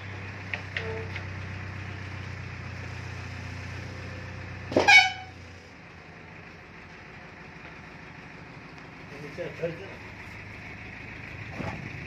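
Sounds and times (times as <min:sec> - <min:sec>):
vehicle horn blast: 0:04.7 - 0:05.4.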